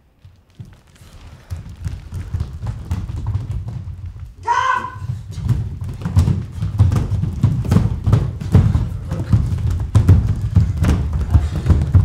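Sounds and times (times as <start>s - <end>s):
barefoot people stamping in step: 0.0s - 12.0s.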